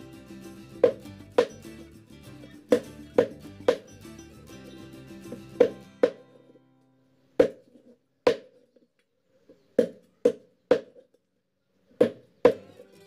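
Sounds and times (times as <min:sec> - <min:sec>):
knife chopping on wooden board: 0:08.3 - 0:08.5.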